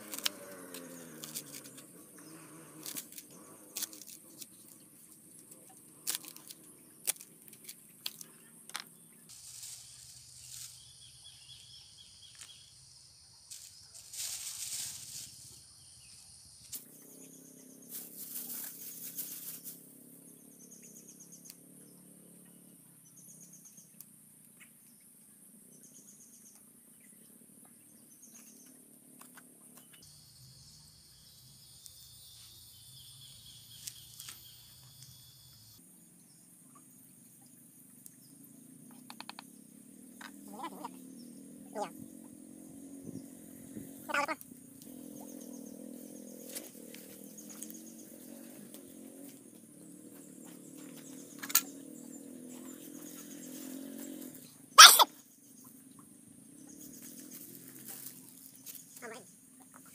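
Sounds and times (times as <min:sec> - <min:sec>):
high insect hum: 0:00.0 - 0:59.9
rustling: 0:02.8 - 0:11.1, 0:13.5 - 0:16.9, 0:17.8 - 0:19.8.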